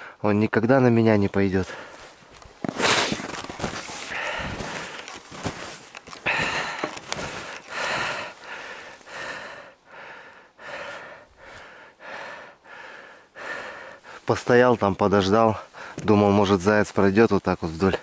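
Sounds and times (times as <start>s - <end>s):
man breathing hard: 4.0s - 5.6s, 6.2s - 14.3s, 15.6s - 16.0s.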